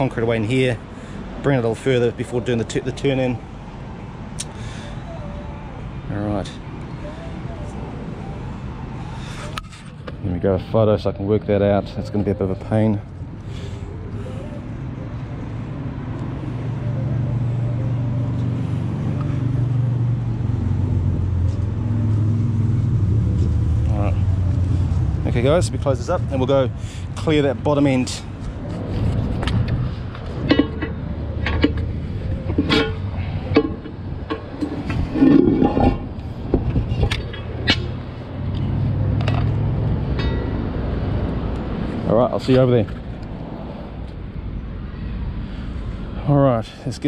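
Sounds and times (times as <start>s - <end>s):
vehicle engine humming: 0.0s - 47.0s
manhole lid scraping: 30.3s - 37.9s
manhole lid clanking: 30.4s - 31.9s, 32.5s - 37.9s.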